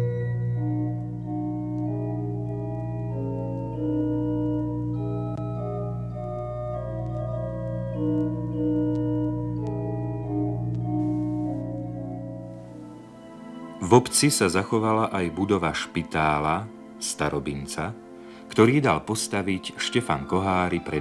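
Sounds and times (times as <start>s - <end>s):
organ music: 0.0s - 21.0s.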